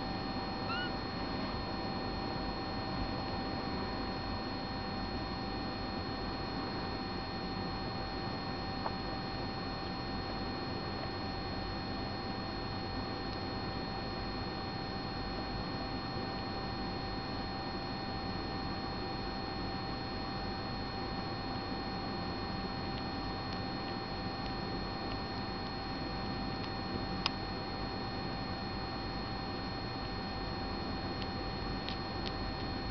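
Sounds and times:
electrical hum: 0.0s - 32.9s.

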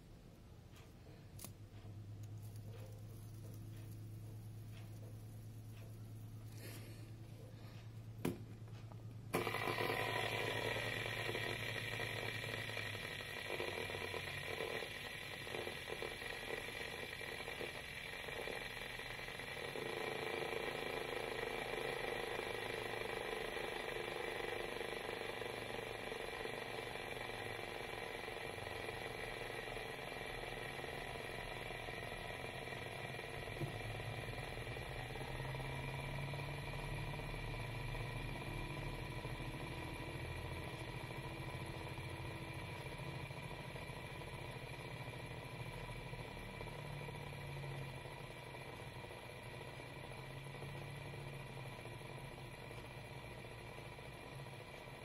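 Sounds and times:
fidget spinner whirring: 0.0s - 55.0s
click: 0.3s - 6.6s.

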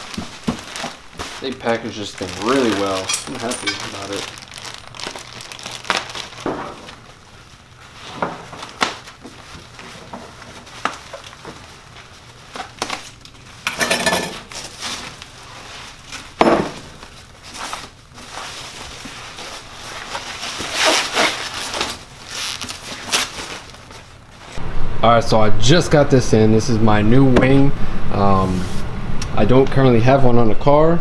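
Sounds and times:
plastic wrap crinkling: 0.0s - 13.7s, 14.4s - 24.6s.

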